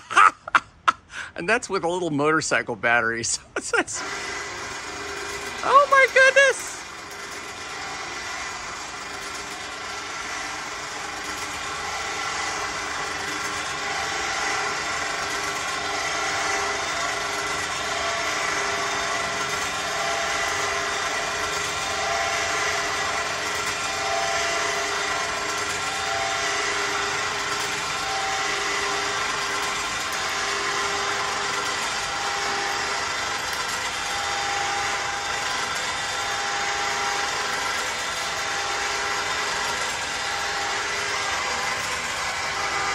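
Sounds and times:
electric winch motor whining: 0.0s - 1.4s, 3.3s - 42.9s.

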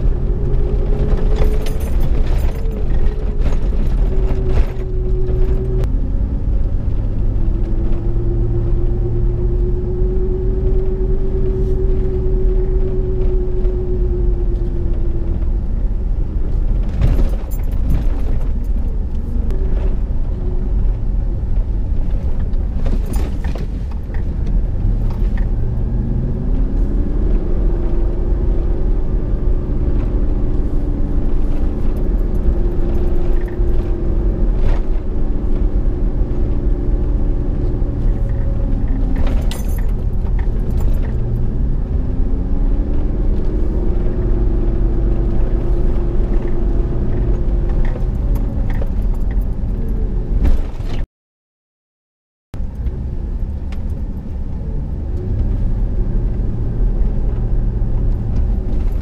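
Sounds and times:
truck engine pulling uphill: 0.0s - 51.0s, 52.6s - 59.0s
tyre and road rumble: 0.0s - 51.0s, 52.6s - 59.0s
knocks and rattles: 0.1s - 5.9s, 16.5s - 20.0s.

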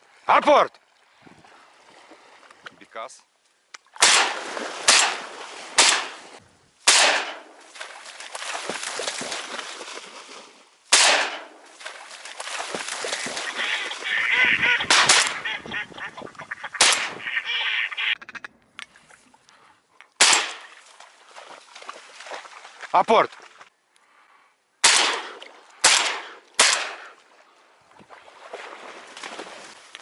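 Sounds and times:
shotgun shots echoing: 4.0s - 6.2s, 6.9s - 7.6s, 10.9s - 11.6s, 16.8s - 17.2s, 20.2s - 20.7s, 24.8s - 27.1s.

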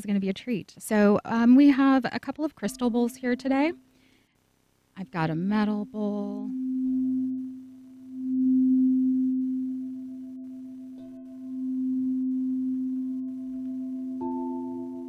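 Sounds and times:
struck bowl note: 5.7s - 15.0s
low singing bowl tone: 5.8s - 15.0s
higher singing bowl note: 5.9s - 15.0s.

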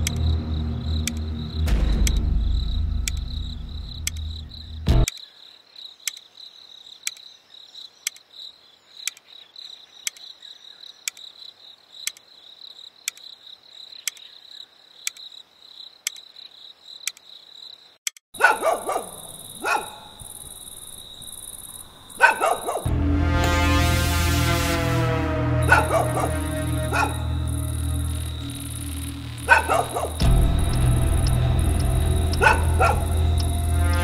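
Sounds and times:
sharp tick: 0.0s - 0.4s, 1.0s - 5.2s, 7.0s - 7.2s, 12.0s - 12.2s, 13.1s - 13.3s, 30.1s - 33.7s
crickets chirping: 0.0s - 22.9s, 25.6s - 34.0s
dog barking: 18.4s - 20.2s, 22.2s - 22.9s, 25.7s - 27.4s, 29.4s - 30.2s, 32.4s - 33.3s.

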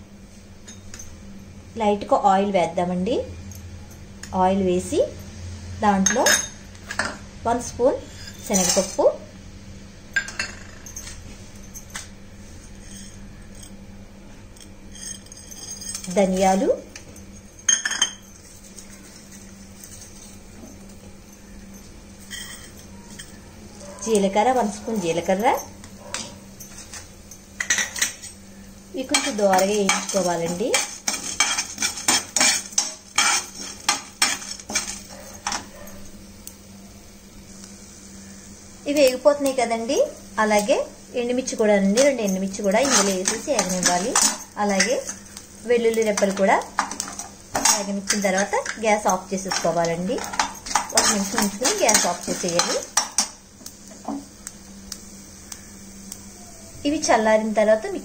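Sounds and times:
spoon scraping a frying pan: 8.0s - 9.1s, 12.6s - 13.8s, 22.2s - 23.4s, 26.1s - 35.7s, 41.6s - 53.4s.

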